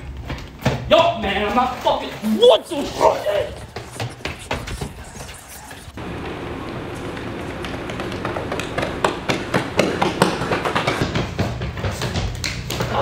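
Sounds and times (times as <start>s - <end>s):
steady low hum: 2.6s - 11.0s
running footsteps on concrete: 2.7s - 13.0s.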